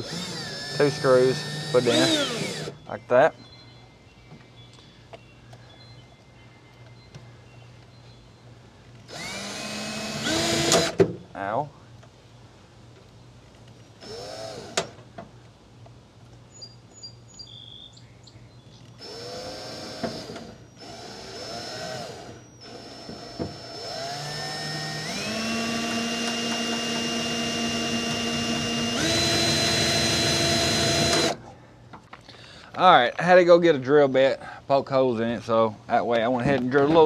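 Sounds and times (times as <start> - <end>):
power drill spinning: 0.0 - 2.8, 9.1 - 11.0, 14.0 - 14.8, 19.0 - 31.4.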